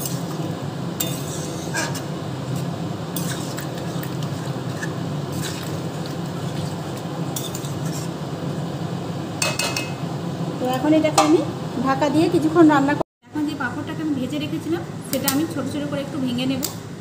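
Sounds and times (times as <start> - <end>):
metal spoon scraping a pan: 0.0 - 0.4, 1.0 - 8.2.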